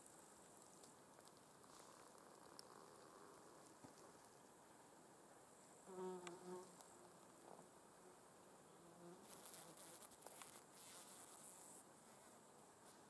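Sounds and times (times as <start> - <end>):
insect wings buzzing: 9.0 - 11.8.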